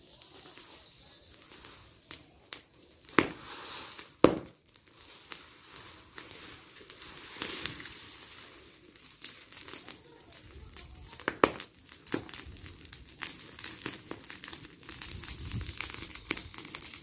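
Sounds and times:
rake dragging leaves: 0.0s - 10.5s
dry leaves rustling and crackling: 0.0s - 17.0s
sharp cracks: 9.0s - 17.0s.

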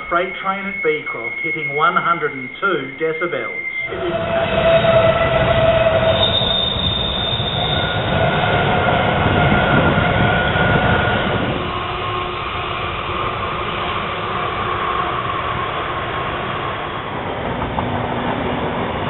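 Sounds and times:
high-pitched wheel squeal: 0.3s - 12.8s
train wheels rumbling on rails: 3.8s - 19.0s.

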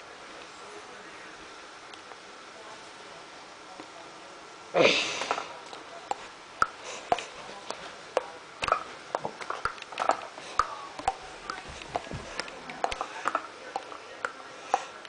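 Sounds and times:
scattered clicks and pops: 5.7s - 15.0s.

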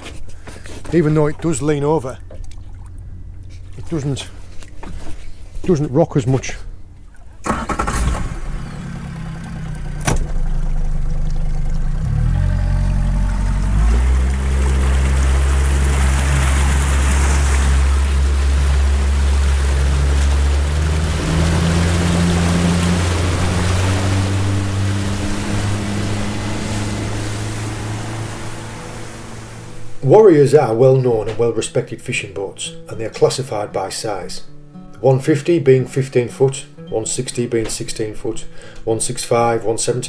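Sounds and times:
outboard motor running: 0.0s - 30.8s
water rushing past hull: 6.4s - 31.2s.

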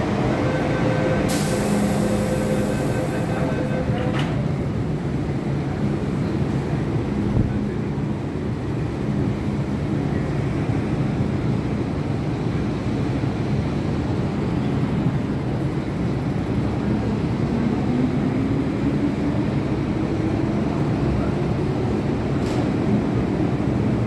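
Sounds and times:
train motor whine: 0.0s - 4.4s
train wheels rumbling: 0.0s - 24.0s.

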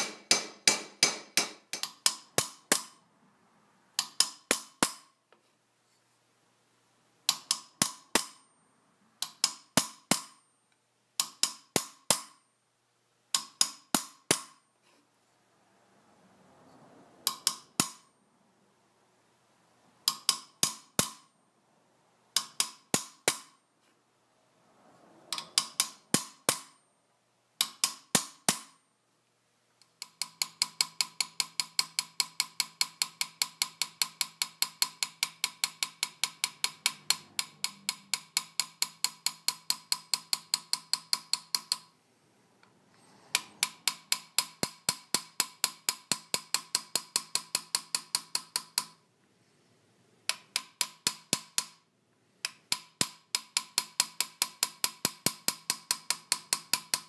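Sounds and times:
hammer tapping metal tool: 0.0s - 3.0s, 3.9s - 5.4s, 7.3s - 8.6s, 9.2s - 12.5s, 13.3s - 15.0s, 17.2s - 18.2s, 20.0s - 21.4s, 22.3s - 23.6s, 25.3s - 26.8s, 27.6s - 28.8s, 29.8s - 42.0s, 43.3s - 49.0s, 50.3s - 57.0s.

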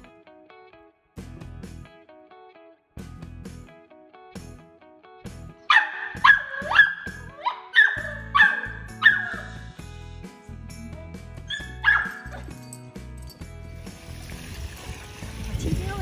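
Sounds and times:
background music: 0.0s - 16.0s
puppy barking: 5.7s - 9.7s, 11.5s - 12.6s.

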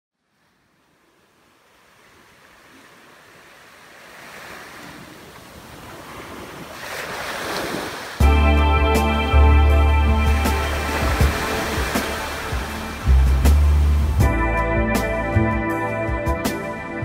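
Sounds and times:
small waves washing on sand: 0.2s - 8.3s, 10.2s - 14.1s.

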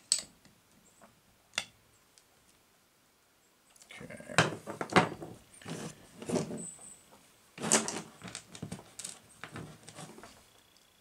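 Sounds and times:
knocks clicks and scrapes of handling: 4.4s - 6.7s, 7.6s - 10.4s.

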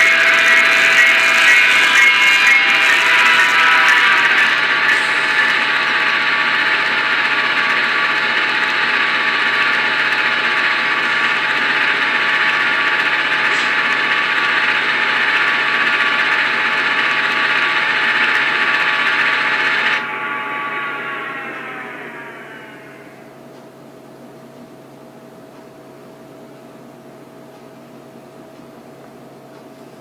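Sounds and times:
model locomotive engine sound: 0.0s - 23.4s.

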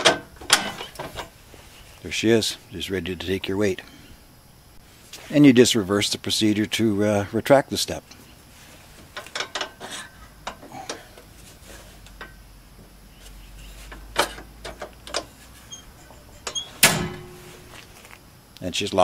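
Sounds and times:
metal clicks and knocks: 0.0s - 1.3s, 9.1s - 9.8s, 13.9s - 15.3s
metal step clanking shut: 0.0s - 1.3s, 14.1s - 17.7s.

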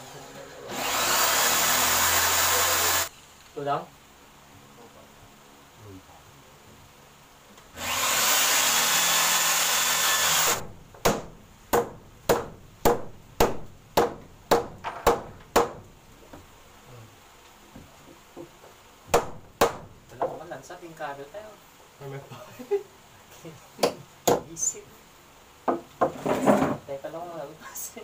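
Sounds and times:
electric drill drilling: 0.7s - 3.1s, 7.8s - 10.6s.

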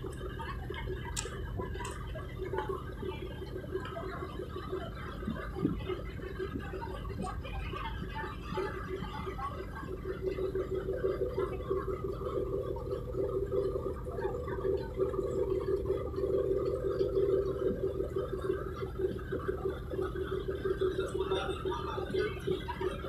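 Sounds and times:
ship engine humming: 0.0s - 23.0s.

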